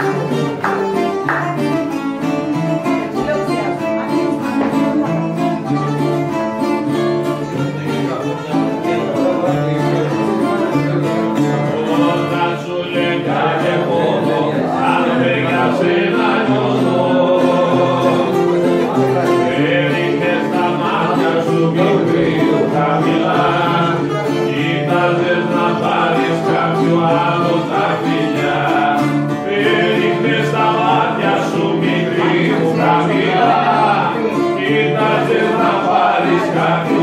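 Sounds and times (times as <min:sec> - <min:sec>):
acoustic guitar: 0:00.0 - 0:37.0
lute playing: 0:00.0 - 0:37.0
man singing: 0:07.6 - 0:37.0.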